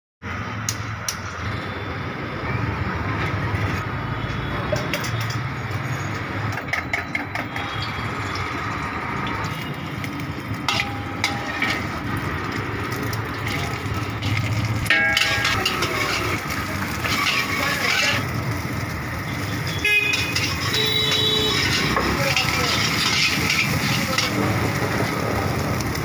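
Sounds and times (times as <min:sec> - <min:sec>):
gas burner rushing: 0:08.4 - 0:26.0.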